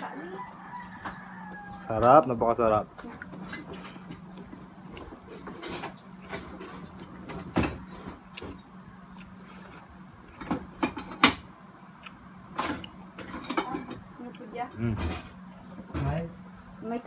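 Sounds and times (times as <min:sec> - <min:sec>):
chewing: 0:03.0 - 0:10.7, 0:11.9 - 0:16.8.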